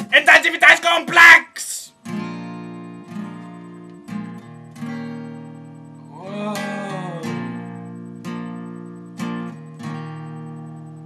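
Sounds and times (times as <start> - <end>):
acoustic guitar strumming: 0.0 - 11.0
person singing: 6.1 - 7.6.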